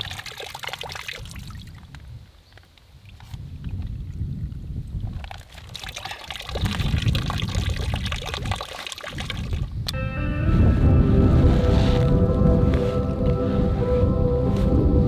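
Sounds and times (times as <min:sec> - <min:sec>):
water splashing onto stones: 0:00.0 - 0:01.9, 0:05.2 - 0:09.7
low rumble: 0:10.0 - 0:15.0.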